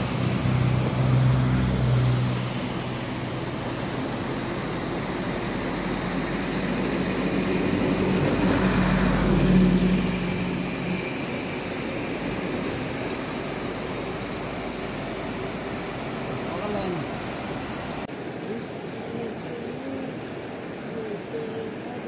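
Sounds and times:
engine hum: 0.0 - 18.2
river rapids rushing over stones: 0.0 - 22.0.

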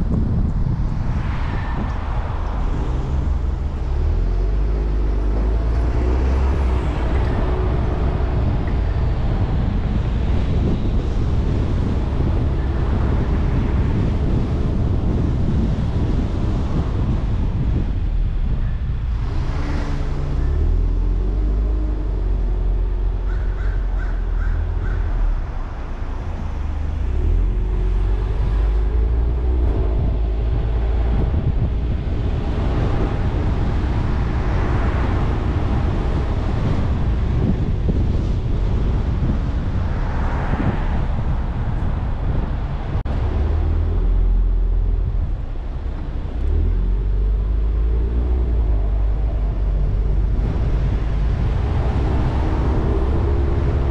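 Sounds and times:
car engine and road rumble: 0.0 - 53.9
wind on microphone: 0.0 - 53.9.

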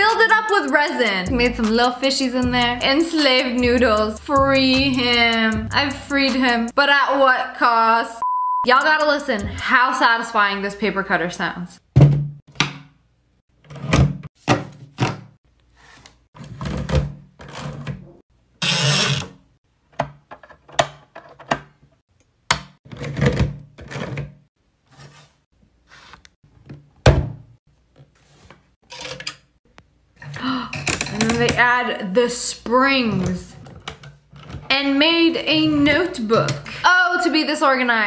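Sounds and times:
paper trimmer slicing: 18.6 - 19.4.

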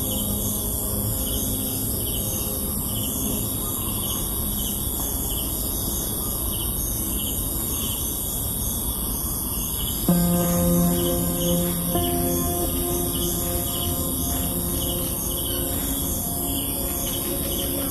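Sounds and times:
faint background music: 0.0 - 17.9
steady low rumble: 10.1 - 17.9.

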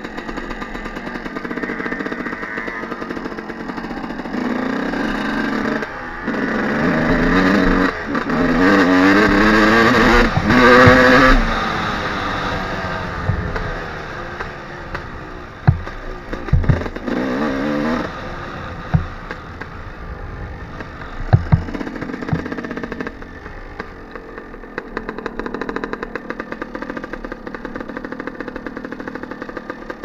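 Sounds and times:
dirt bike engine running: 0.0 - 30.0
bike thumping over rough ground: 15.6 - 17.0, 21.2 - 22.6.

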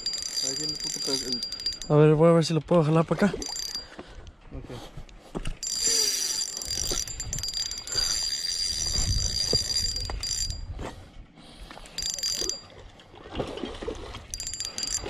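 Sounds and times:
fishing reel gears whining: 0.0 - 2.0, 3.4 - 3.9, 5.6 - 10.6, 12.0 - 12.6, 14.3 - 15.0.

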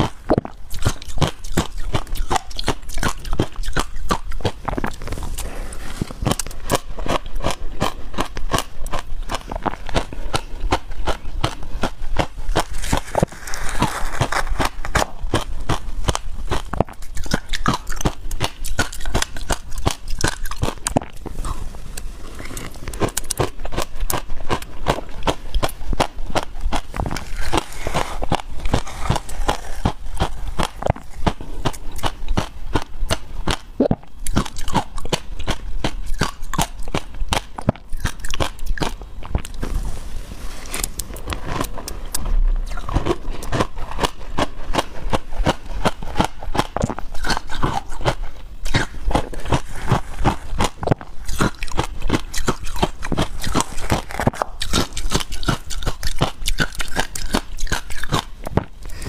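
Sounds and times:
chewing crushed ice: 0.0 - 39.7, 40.6 - 59.0.

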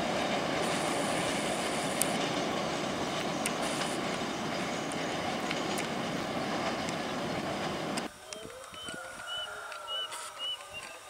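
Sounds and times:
train rolling over steel bridge: 0.0 - 8.6.

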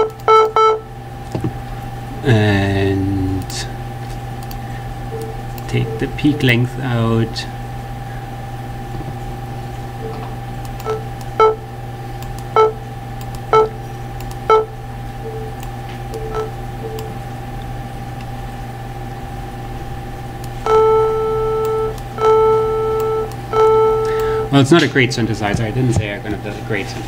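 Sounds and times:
short synthesizer beeps: 0.0 - 0.8, 5.1 - 6.7, 10.8 - 11.6, 12.6 - 12.8, 13.5 - 13.8, 14.5 - 17.1, 20.6 - 24.6
steady low hum: 0.0 - 27.0
held synthesizer note: 19.3 - 24.6.

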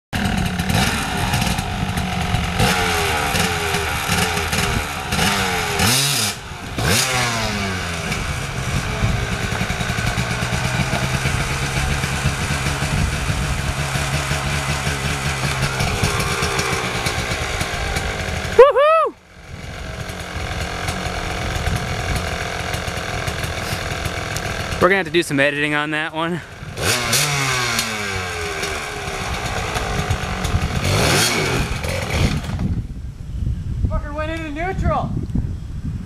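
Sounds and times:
dirt bike engine revving: 0.2 - 32.9.

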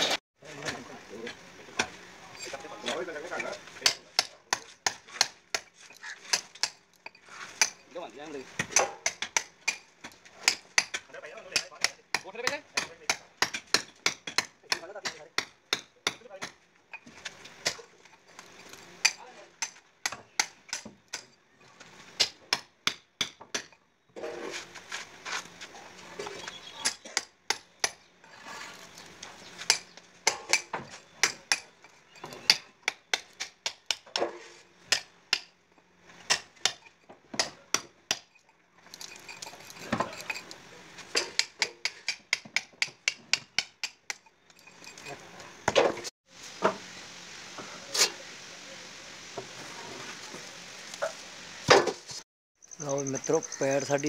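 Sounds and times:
hammer striking steel chisel: 41.1 - 44.3.

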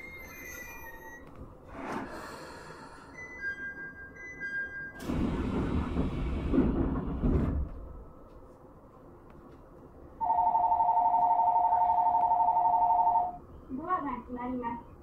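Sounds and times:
rumble and hiss: 5.0 - 10.2.

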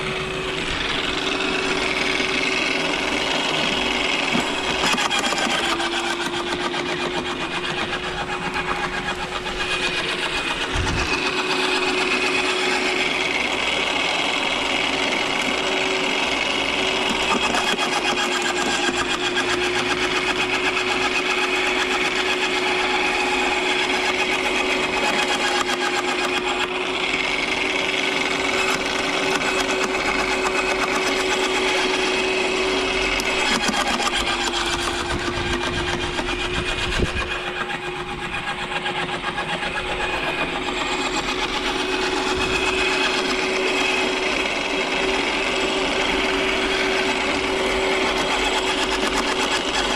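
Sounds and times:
shredder motor hum: 0.0 - 49.9.

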